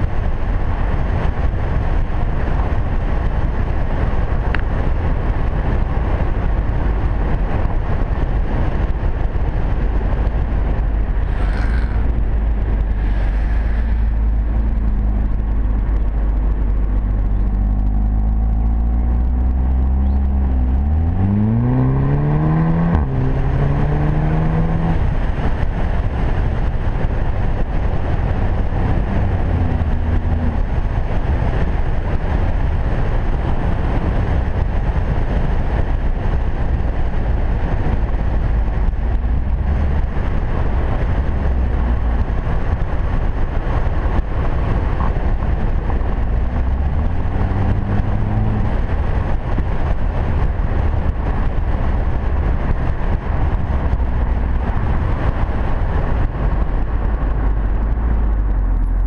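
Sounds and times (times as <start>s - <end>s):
car engine accelerating: 0.0s - 59.0s
road and wind noise: 0.0s - 59.0s.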